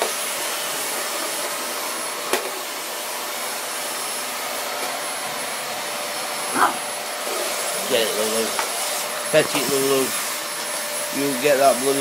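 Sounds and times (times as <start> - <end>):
vacuum cleaner running: 0.0 - 12.0
dog barking: 6.5 - 6.9.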